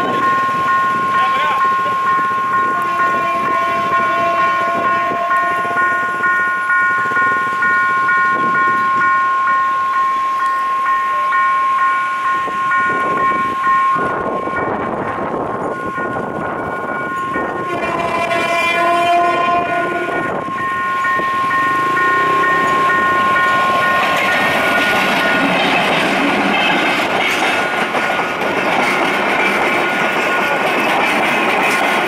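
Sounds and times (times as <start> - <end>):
locomotive air horn blasts: 2.7 - 6.0, 17.5 - 20.6
train wheels clattering over rails: 21.1 - 32.0.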